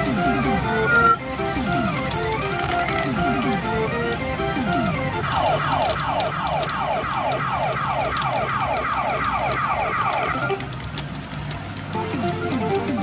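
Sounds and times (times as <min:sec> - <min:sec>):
siren-like falling electronic tone: 0:05.2 - 0:10.6.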